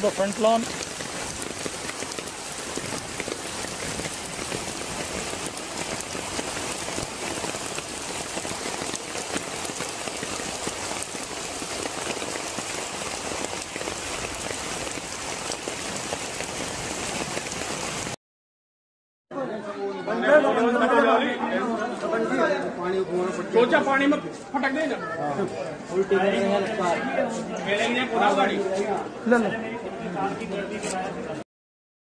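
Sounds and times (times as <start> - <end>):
heavy rain pouring: 0.0 - 18.2.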